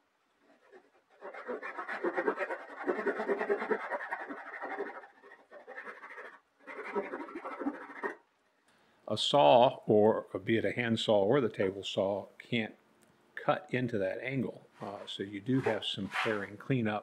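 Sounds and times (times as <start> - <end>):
handsaw sawing wood: 0.6 - 8.2, 15.6 - 16.5.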